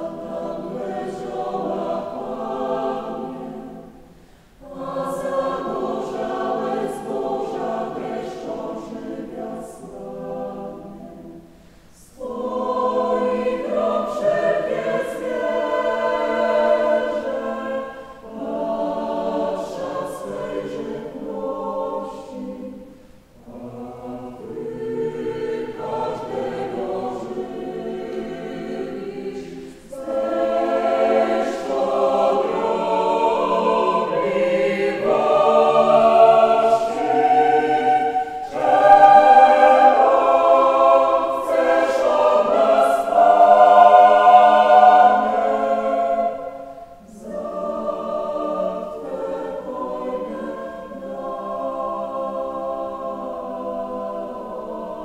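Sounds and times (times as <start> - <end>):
mixed choir singing unaccompanied: 0.0 - 55.0.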